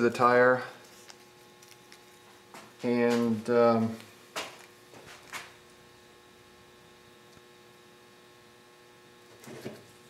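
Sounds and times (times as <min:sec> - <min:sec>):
faint electrical hum: 0:00.0 - 0:10.0
tape rustling: 0:00.8 - 0:03.3.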